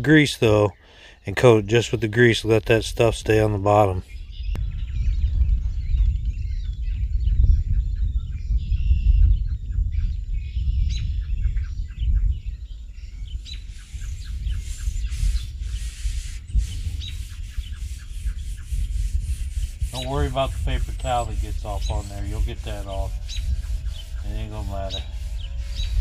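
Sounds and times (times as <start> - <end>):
small birds chirping: 3.4 - 26.0
steady low rumble: 4.5 - 26.0
paper towel scratching on griddle: 13.8 - 26.0.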